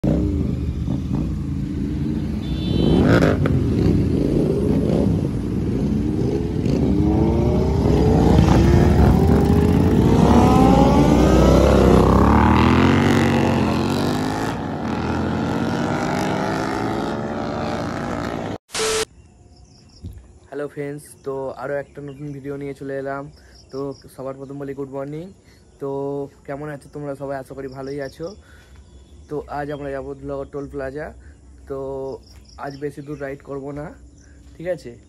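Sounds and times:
motorcycles accelerating: 0:00.0 - 0:18.6.

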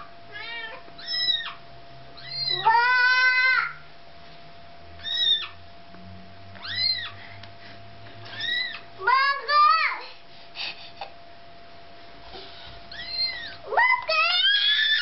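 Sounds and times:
kitten crying: 0:00.0 - 0:01.6, 0:02.2 - 0:03.8, 0:05.0 - 0:05.6, 0:06.6 - 0:07.2, 0:08.3 - 0:08.9, 0:12.9 - 0:15.0.

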